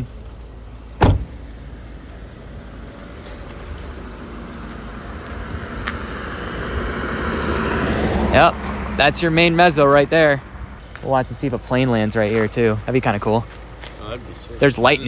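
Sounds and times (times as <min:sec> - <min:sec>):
road traffic rumble: 0:00.0 - 0:15.0
heavy thump: 0:01.0 - 0:01.4.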